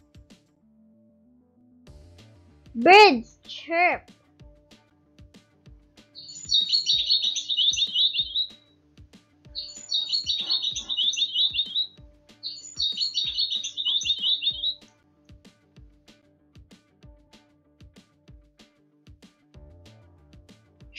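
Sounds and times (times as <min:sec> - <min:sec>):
background music with steady beat: 0:00.0 - 0:00.9, 0:01.8 - 0:20.9
songbird singing: 0:06.2 - 0:08.6, 0:09.5 - 0:14.9.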